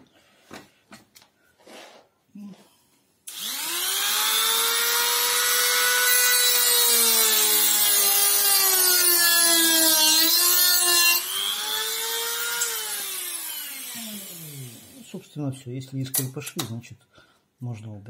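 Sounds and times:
rotary tool cutting whine: 3.3s - 15.0s.

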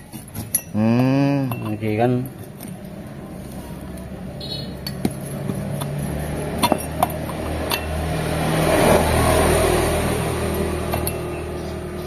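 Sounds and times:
metal clinks: 0.1s - 2.0s, 6.6s - 8.0s
engine hum: 0.2s - 12.0s.

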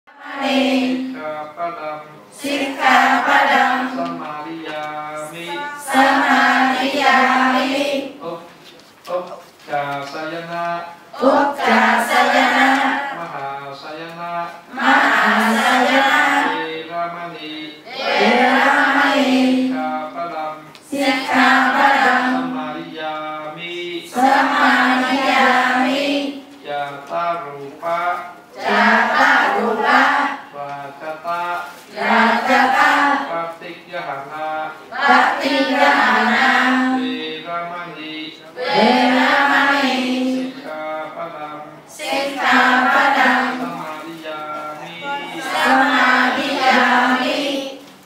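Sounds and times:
women chanting in unison: 0.1s - 1.2s, 2.4s - 4.2s, 5.2s - 8.2s, 11.1s - 13.2s, 14.7s - 16.6s, 17.9s - 19.8s, 20.8s - 22.6s, 24.1s - 26.5s, 28.6s - 30.4s, 31.9s - 33.3s, 34.9s - 37.0s, 38.6s - 40.6s, 41.9s - 43.6s, 45.0s - 47.8s.

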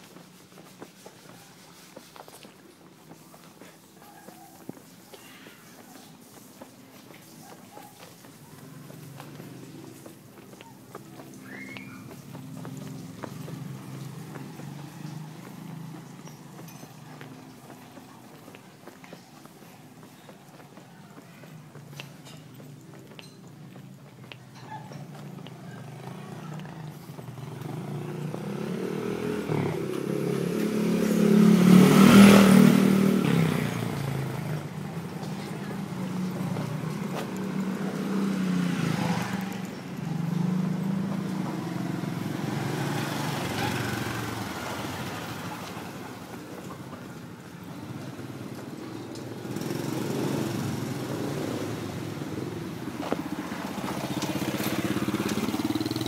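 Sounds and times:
small motorcycle engine: 25.1s - 46.2s, 47.5s - 56.0s.

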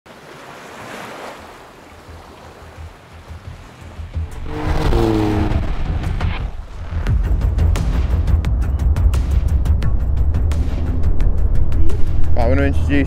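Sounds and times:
sea surf: 0.1s - 7.0s
wind: 0.1s - 13.0s
wavering hum: 4.2s - 7.7s
deep rumble: 4.2s - 13.0s.

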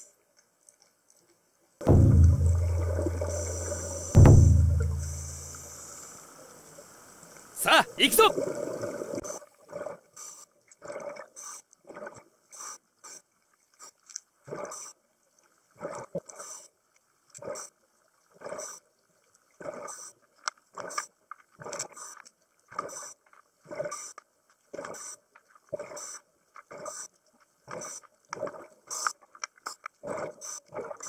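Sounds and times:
exhaled bubbles: 1.8s - 5.7s.

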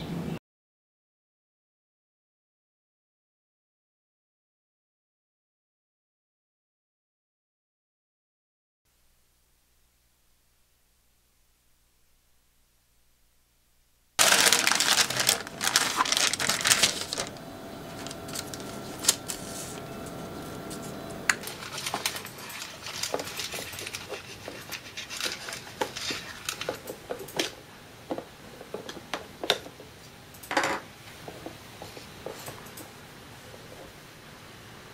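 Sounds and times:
plastic wrap crinkling: 14.2s - 27.6s.

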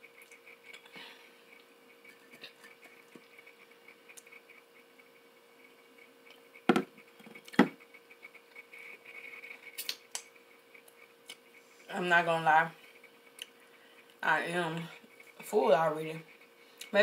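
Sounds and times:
faint steady hum: 0.0s - 17.0s
sharp knocks: 6.7s - 6.9s.

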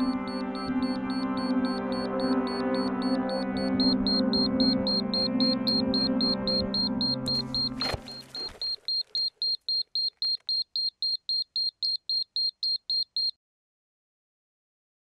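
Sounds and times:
music: 0.0s - 8.4s
rapid high electronic beeps: 0.0s - 13.3s.

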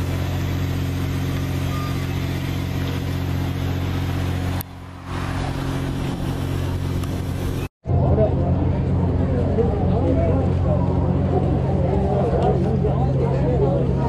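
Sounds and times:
train mechanical drone: 0.0s - 14.0s.

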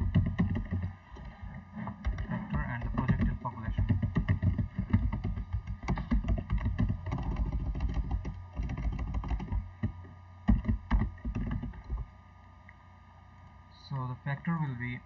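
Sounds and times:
computer keyboard typing: 0.0s - 12.0s.

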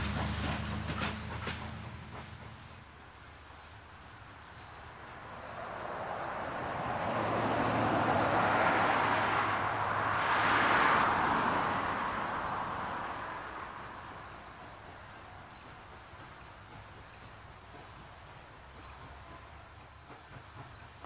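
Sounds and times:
road vehicle passing by: 0.0s - 16.5s.

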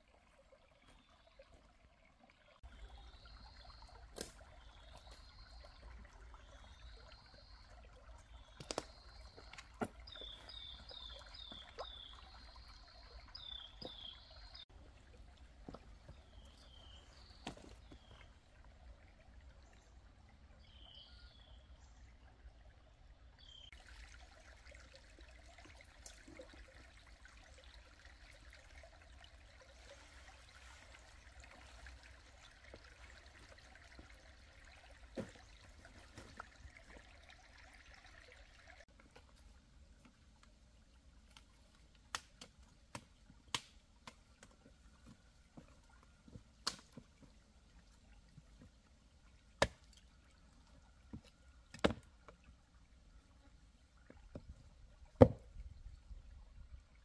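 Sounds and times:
stream trickling: 0.0s - 57.0s.

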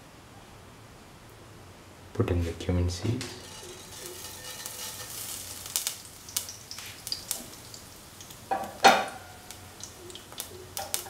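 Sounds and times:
seeds sizzling and popping in oil: 3.2s - 11.0s
loud crackle: 3.3s - 8.4s.

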